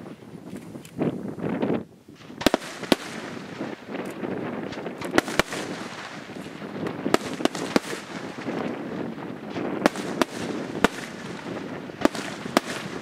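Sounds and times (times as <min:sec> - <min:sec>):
firework crackle and rumble: 0:00.0 - 0:13.0
firework shells bursting: 0:02.1 - 0:13.0.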